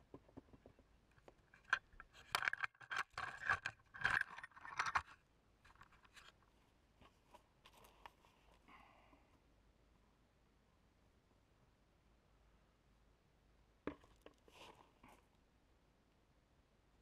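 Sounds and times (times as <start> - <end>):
camera handling scrapes: 1.6 - 5.1.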